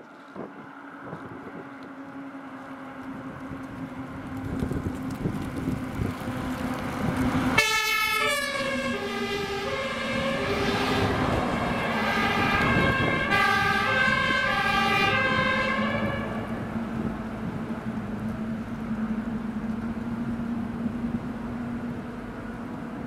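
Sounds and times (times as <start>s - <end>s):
road noise: 0.0s - 23.0s
truck engine: 0.0s - 23.0s
fire engine two-tone siren: 7.3s - 17.6s.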